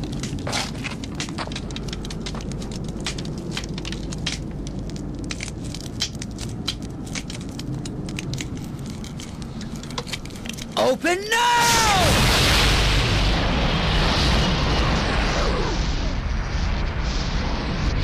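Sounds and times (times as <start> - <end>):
steady low rumble: 0.0 - 11.0, 12.1 - 18.0
dense irregular crackling: 0.0 - 14.4.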